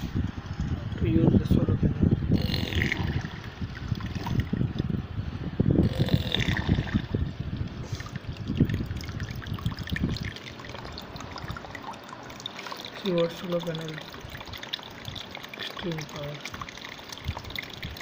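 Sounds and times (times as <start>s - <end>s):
submersible water pump running: 1.0s - 18.0s
water splashing and trickling: 2.6s - 4.9s, 6.3s - 18.0s.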